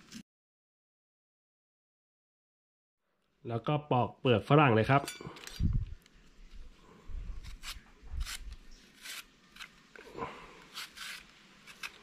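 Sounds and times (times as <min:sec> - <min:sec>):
vegetable peeler scraping fruit skin: 0:07.3 - 0:12.0.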